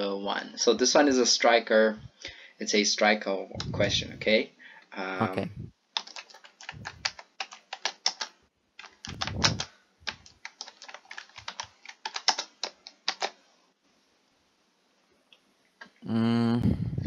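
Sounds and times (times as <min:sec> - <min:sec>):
computer keyboard key clicks: 0:06.0 - 0:13.4.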